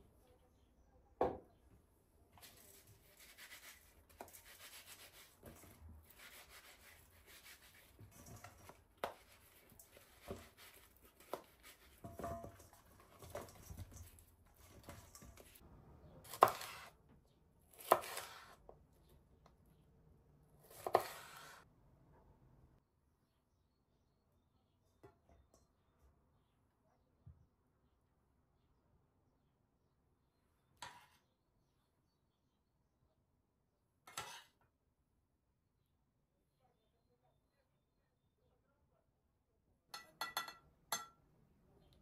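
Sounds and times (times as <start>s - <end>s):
vegetables rustling in metal bowl: 2.4s - 15.6s
knife slicing on cutting board: 16.3s - 16.9s, 17.7s - 18.6s, 20.7s - 21.6s.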